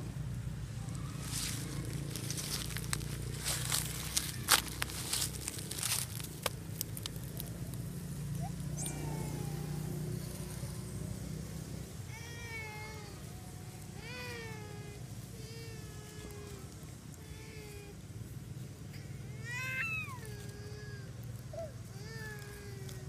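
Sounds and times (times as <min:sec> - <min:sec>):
clicks of movement in dry leaves: 0:00.1 - 0:23.0
infant monkey crying: 0:08.2 - 0:18.1, 0:19.0 - 0:23.0.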